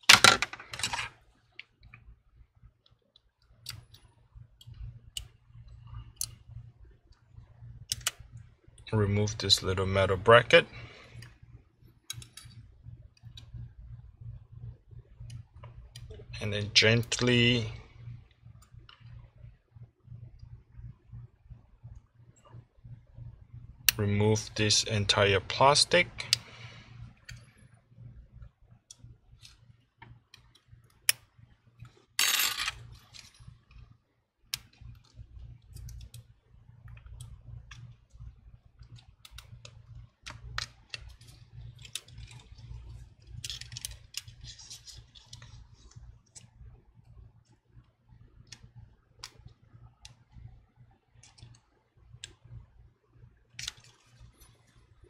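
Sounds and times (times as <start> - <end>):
metal tools clicking on phone parts: 12.1 - 12.6, 38.9 - 45.6.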